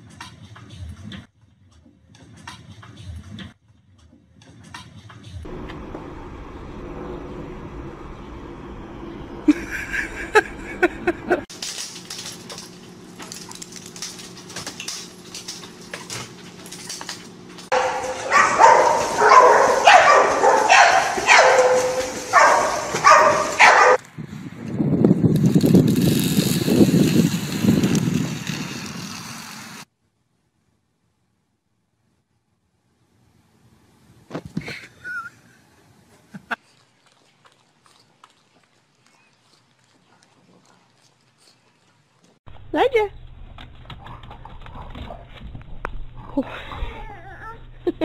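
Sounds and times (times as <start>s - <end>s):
dog barking and whining: 17.7s - 24.0s
dog yipping: 17.7s - 24.0s.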